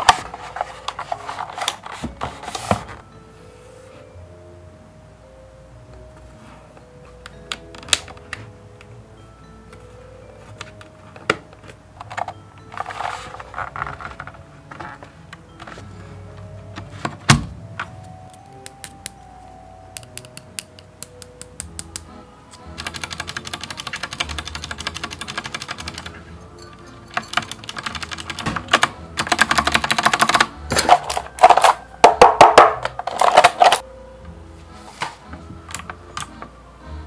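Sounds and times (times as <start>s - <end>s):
soft background music: 0.0s - 37.0s
mechanical keyboard typing: 22.8s - 26.3s, 27.1s - 31.9s.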